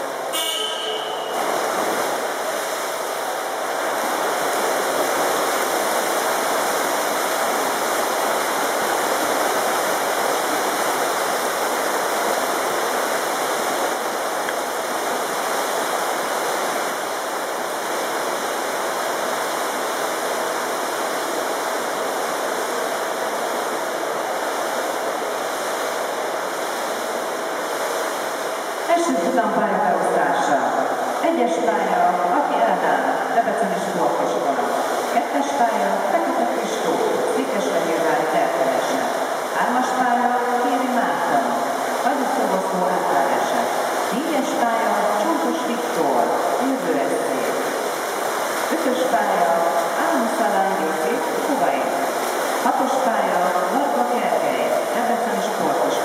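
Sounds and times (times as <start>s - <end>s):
swimmers splashing water: 0.0s - 14.8s.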